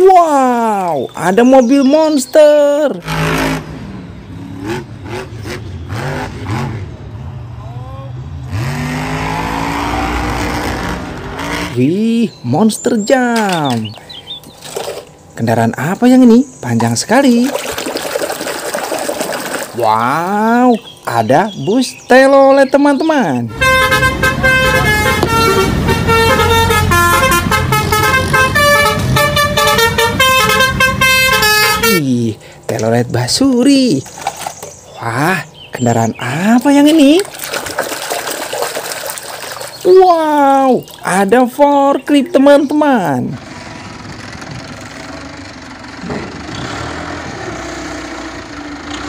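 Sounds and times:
truck engine revving: 2.9 - 12.0, 23.5 - 32.0, 43.3 - 49.0
multi-tone bus horn tune: 3.0 - 3.9, 23.5 - 32.1.

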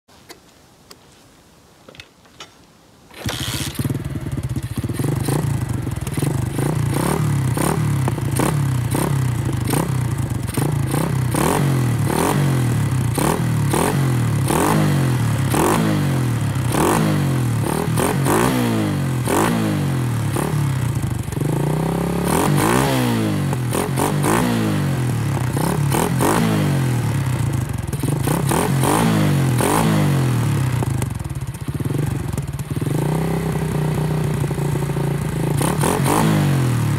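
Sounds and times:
motorcycle kick-start: 3.1 - 11.0
motorcycle engine revving: 3.2 - 36.9.

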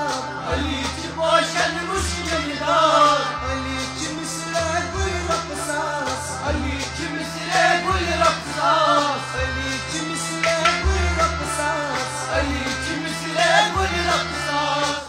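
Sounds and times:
bass line: 0.0 - 15.0
man singing ornamented melody: 0.0 - 15.0
percussion: 0.0 - 15.0.

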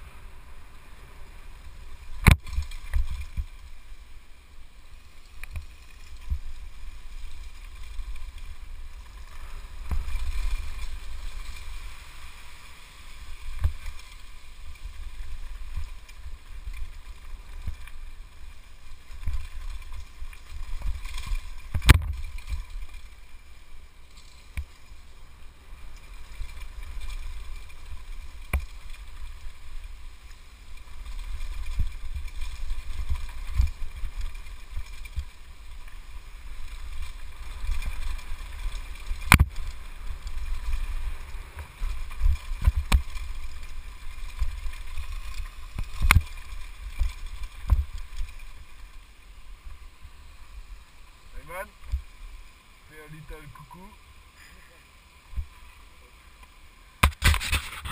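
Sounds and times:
bike knocking and rattling: 2.0 - 4.0, 13.4 - 25.2, 25.8 - 49.0, 57.0 - 57.9.

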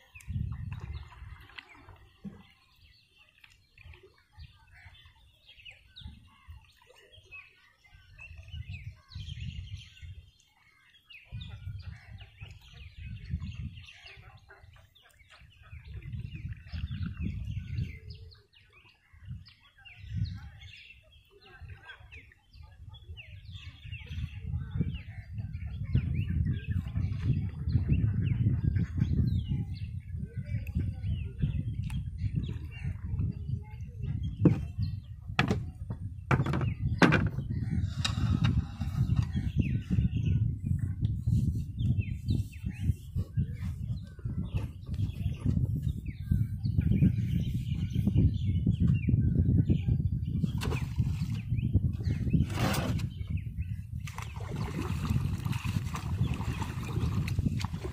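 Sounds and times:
birds chirping and calling: 0.0 - 57.9
low rumbling: 34.1 - 41.0.

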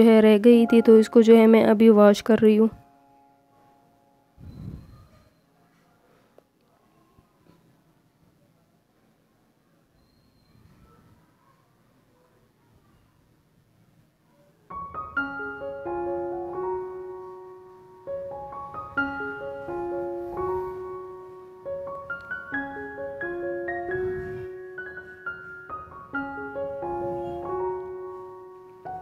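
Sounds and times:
piano music: 0.0 - 5.0, 14.7 - 29.0.

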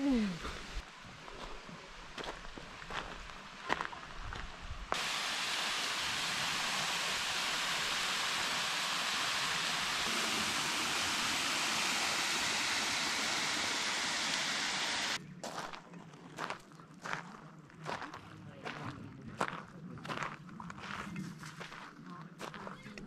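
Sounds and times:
rushing water: 4.9 - 15.2.

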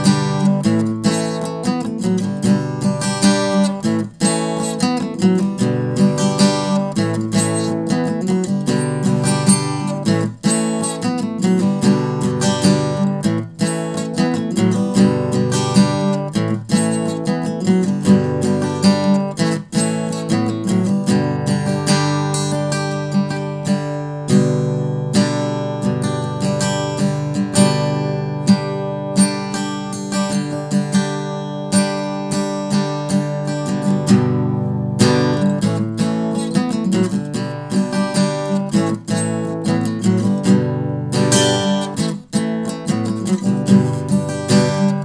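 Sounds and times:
strummed acoustic guitar: 0.0 - 45.0.

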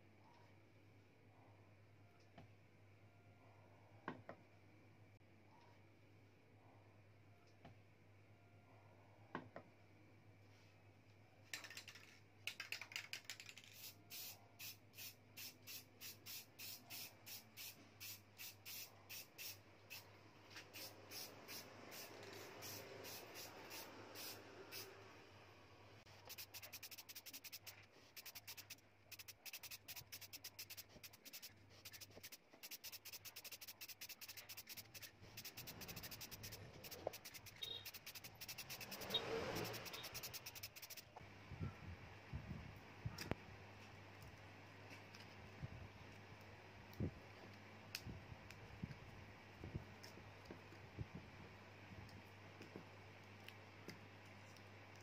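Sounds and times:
aerosol spray can hissing: 13.6 - 25.0, 26.1 - 41.1.

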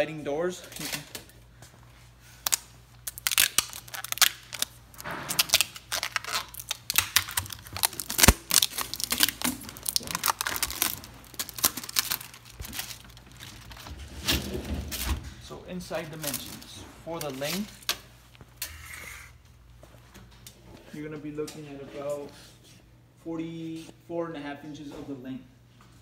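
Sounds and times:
plastic film crinkling: 2.4 - 15.1, 15.9 - 18.4.

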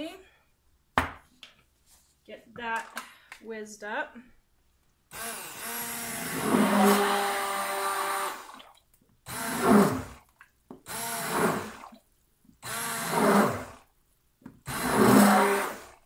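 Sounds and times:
stick blender motor: 5.1 - 8.6, 9.3 - 10.2, 10.8 - 11.9, 12.6 - 13.9, 14.6 - 16.0.

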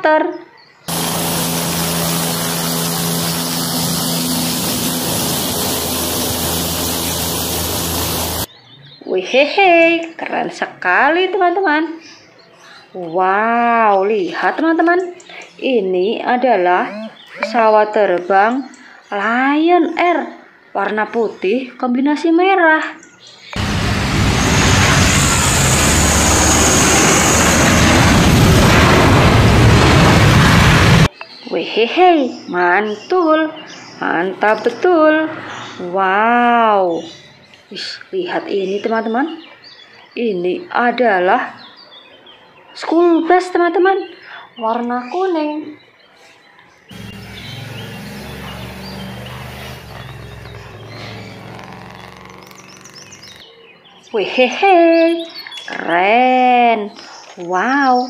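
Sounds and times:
helicopter hovering: 0.9 - 8.5, 23.6 - 31.1, 46.9 - 53.4
high engine whine: 0.9 - 8.5, 23.6 - 31.1, 46.9 - 53.4
jet engines roaring: 0.9 - 8.5, 23.6 - 31.1, 46.9 - 53.4.

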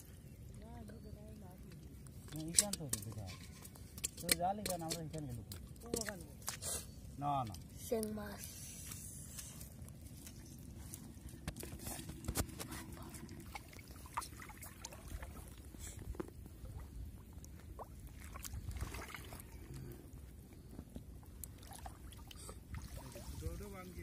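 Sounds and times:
water dripping and lapping: 0.0 - 24.0
small splashes: 11.8 - 16.0, 17.6 - 19.8, 21.4 - 24.0.

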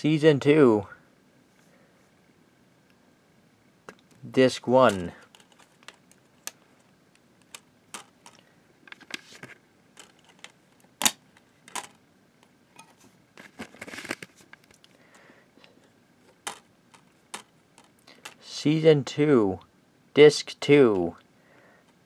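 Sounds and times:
rustling handling: 4.8 - 15.1.

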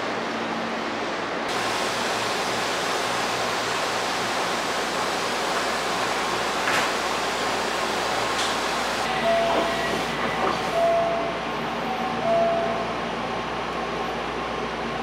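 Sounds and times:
electric train hissing: 1.5 - 12.0.

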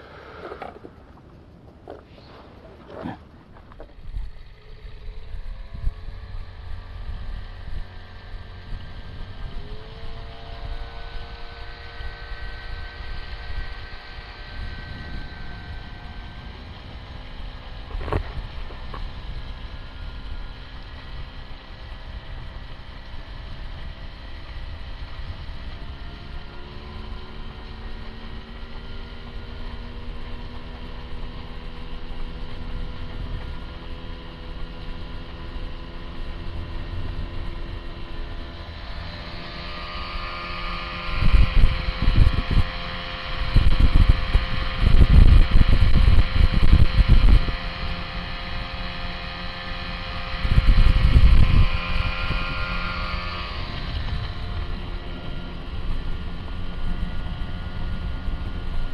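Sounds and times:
outboard motor running: 0.0 - 58.9
wind buffeting microphone: 13.5 - 19.5, 40.6 - 47.8, 50.1 - 58.9.

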